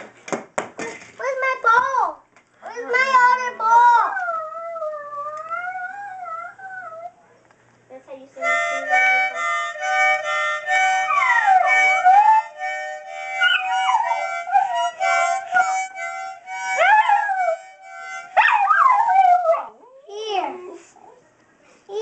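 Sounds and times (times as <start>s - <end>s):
dog howling: 3.9s - 7.2s, 13.4s - 15.8s, 16.7s - 17.7s, 18.3s - 20.0s
harmonica playing chords: 8.4s - 18.7s.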